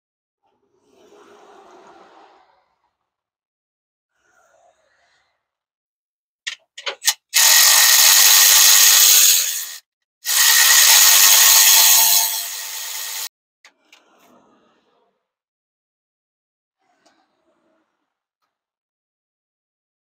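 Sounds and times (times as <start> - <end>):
cordless power tool spinning: 6.8 - 13.3.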